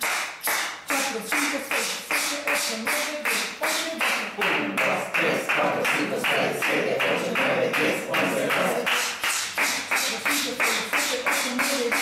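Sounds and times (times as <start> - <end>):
group making shh sounds: 0.0 - 12.0
hands clapping: 0.0 - 12.0.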